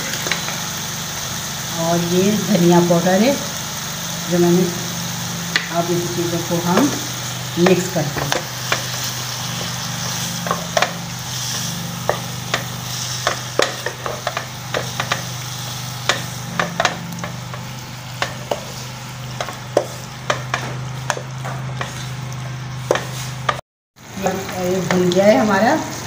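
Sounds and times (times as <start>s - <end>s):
chicken sizzling in oil: 0.0s - 26.0s
steady low hum: 1.6s - 24.9s
spatula tapping and scraping pan: 6.7s - 15.4s, 16.0s - 23.6s.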